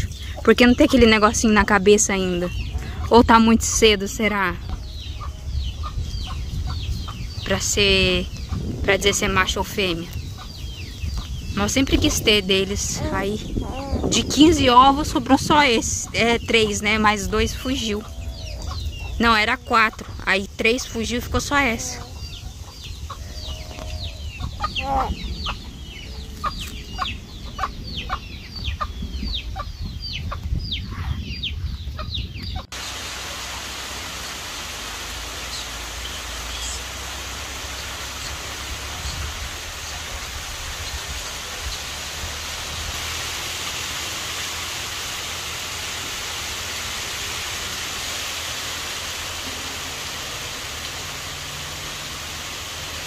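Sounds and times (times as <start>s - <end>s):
rain falling: 0.0s - 30.1s, 32.6s - 53.0s
poultry peeping: 0.0s - 32.7s.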